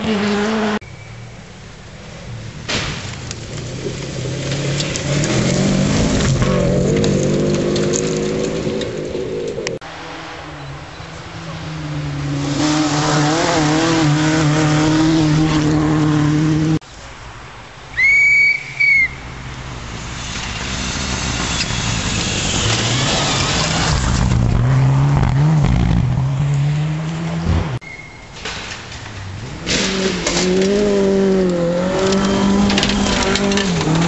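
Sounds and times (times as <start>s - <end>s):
tyres on gravel: 0.0s - 9.8s, 16.8s - 34.0s
rally car engine: 0.0s - 16.8s, 19.3s - 27.8s, 29.0s - 34.0s.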